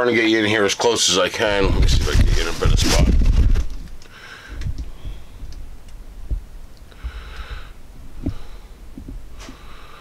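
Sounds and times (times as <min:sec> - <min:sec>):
soft hiss: 0:01.8 - 0:10.0.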